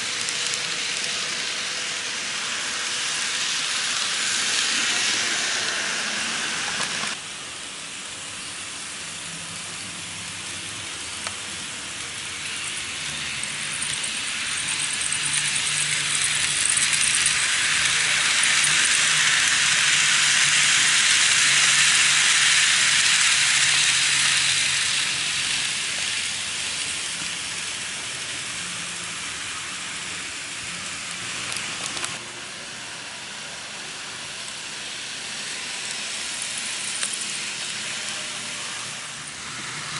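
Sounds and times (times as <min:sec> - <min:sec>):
model train wheels rattling: 0:00.0 - 0:07.2, 0:10.4 - 0:32.2, 0:34.4 - 0:39.9.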